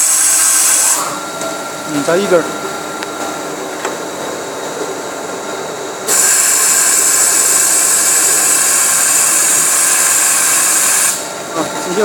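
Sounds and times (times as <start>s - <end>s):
loud high-pitched hiss: 0.0s - 1.1s, 6.1s - 11.4s
machine running: 0.0s - 12.0s.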